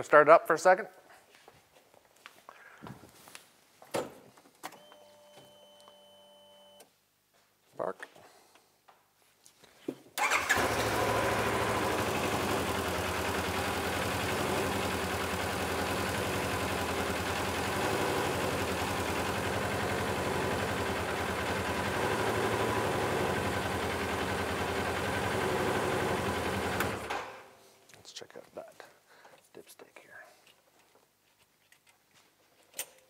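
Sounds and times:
engine idling: 0:10.2 - 0:27.1
engine cranking and starting: 0:10.2 - 0:27.4.

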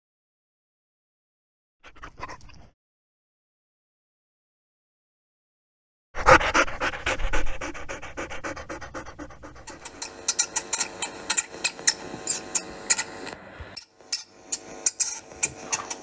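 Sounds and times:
dog panting: 0:06.2 - 0:10.2.

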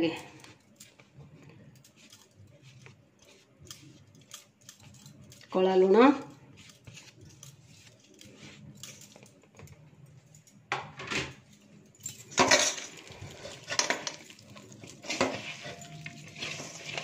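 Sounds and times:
hand mashing potatoes in bowl: 0:00.0 - 0:09.7, 0:12.5 - 0:17.0
clinks and scrapes against bowl: 0:00.0 - 0:09.8, 0:12.0 - 0:17.0
bangles jingling: 0:00.1 - 0:05.5, 0:11.4 - 0:17.0.

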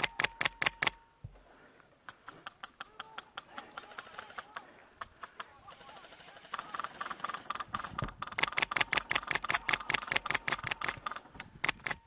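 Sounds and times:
airsoft rifles firing: 0:03.3 - 0:12.0.

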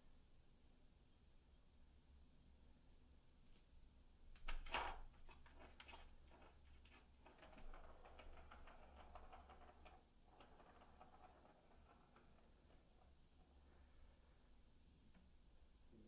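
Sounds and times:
plastic ball rattling in track: 0:04.4 - 0:13.9.

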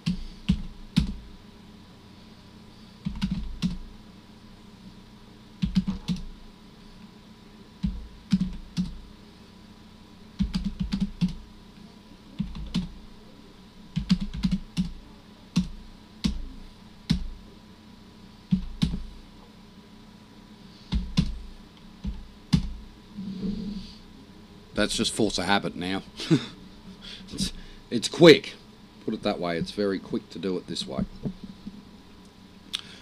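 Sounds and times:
computer keyboard typing: 0:00.0 - 0:01.2, 0:03.0 - 0:03.8, 0:05.6 - 0:06.3, 0:07.8 - 0:09.0, 0:10.4 - 0:11.4, 0:12.4 - 0:12.9, 0:13.9 - 0:15.0, 0:18.5 - 0:19.0, 0:20.9 - 0:21.4.

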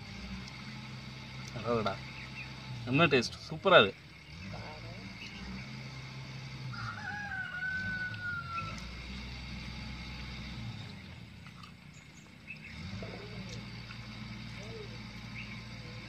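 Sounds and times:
rooster crowing: 0:06.6 - 0:09.1.

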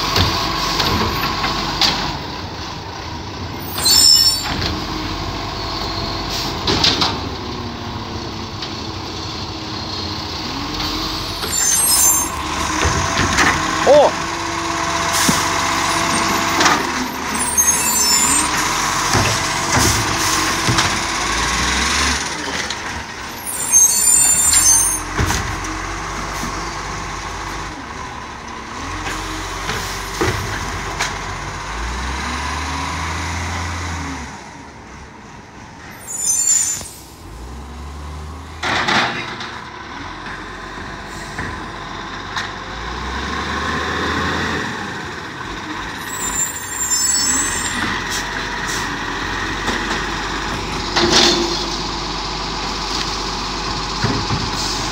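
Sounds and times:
garbage truck engine running: 0:00.0 - 0:36.0, 0:37.2 - 0:54.9
air brakes hissing: 0:35.9 - 0:37.3.

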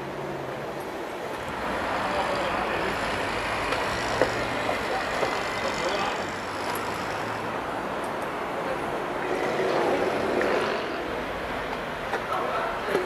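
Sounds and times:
distant traffic hum: 0:00.0 - 0:13.0.

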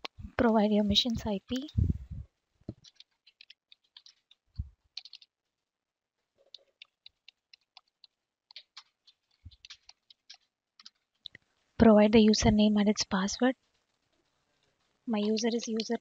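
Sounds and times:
keyboard keys clicking: 0:05.0 - 0:05.3.

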